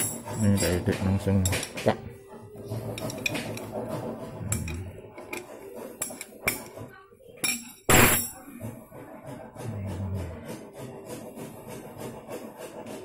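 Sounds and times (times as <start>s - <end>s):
metal tools clinking and tapping: 7.4s - 8.4s.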